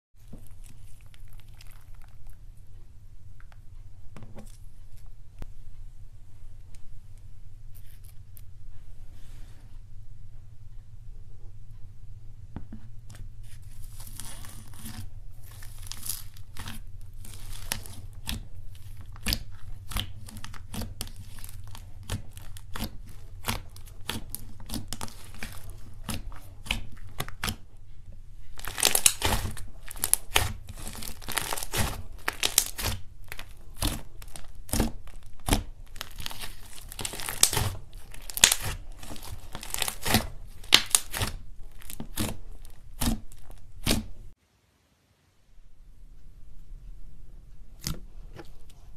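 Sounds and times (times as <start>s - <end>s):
sticky slime crackling and popping: 0.2s - 2.4s, 13.2s - 27.8s, 28.4s - 44.3s
low steady hum: 0.2s - 48.9s.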